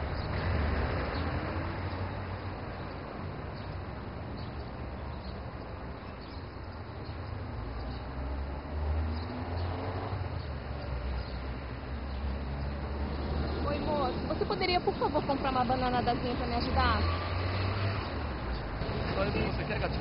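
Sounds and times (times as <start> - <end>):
road traffic hiss: 0.0 - 20.0.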